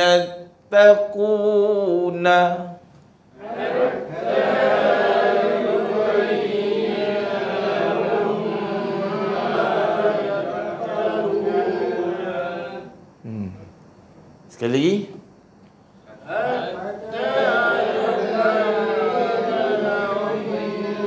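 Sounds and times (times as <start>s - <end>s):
group chanting in unison: 3.4s - 13.0s, 16.1s - 21.0s.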